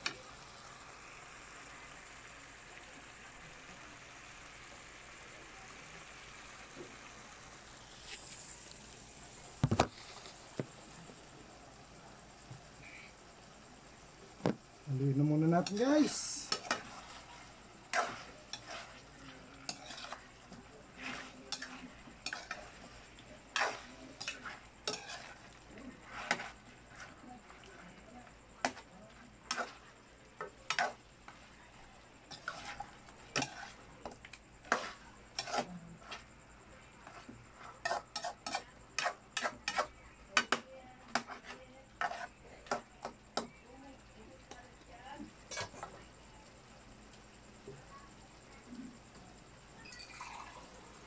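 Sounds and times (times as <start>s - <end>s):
chicken sizzling: 0.0s - 51.0s
spatula scraping a frying pan: 15.3s - 28.0s, 28.6s - 43.5s, 45.4s - 46.0s.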